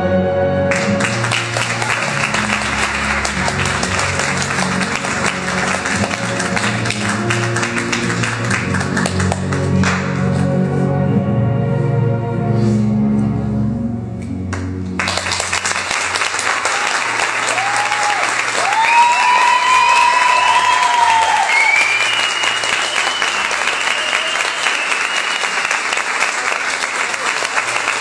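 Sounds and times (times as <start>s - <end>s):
music: 0.0s - 28.0s
audience cheering: 0.7s - 8.8s, 15.0s - 28.0s
audience applause: 0.7s - 10.3s, 14.5s - 28.0s.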